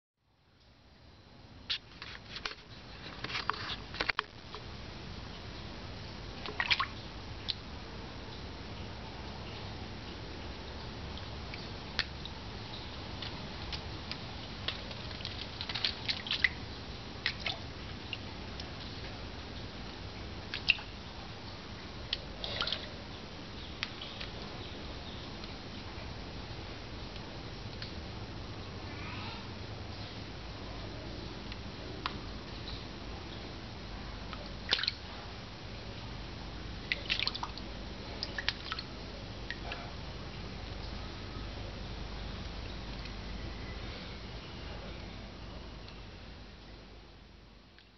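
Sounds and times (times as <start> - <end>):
cat paw splashing pond water: 6.4 - 7.6, 13.6 - 16.6, 36.8 - 38.9
water splashes and drips: 6.4 - 7.6, 11.1 - 21.0, 22.0 - 23.1, 34.3 - 35.2, 36.8 - 40.0.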